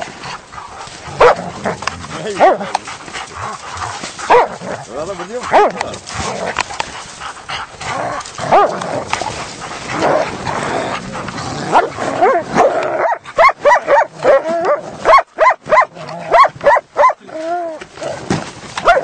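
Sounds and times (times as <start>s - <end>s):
dogs scuffling: 0.0s - 12.4s
dogs barking sharply: 1.2s - 2.8s, 3.8s - 4.6s, 5.4s - 5.9s, 11.7s - 17.2s, 18.8s - 19.0s.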